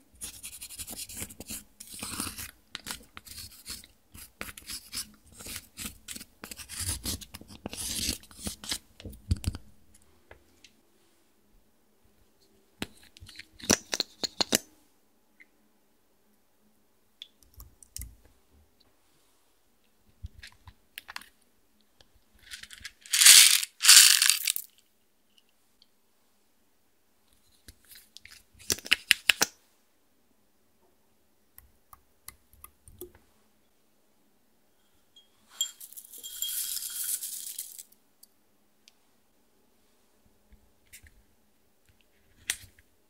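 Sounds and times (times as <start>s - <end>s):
beads rattling and spilling: 22.5s - 24.7s, 35.7s - 37.9s.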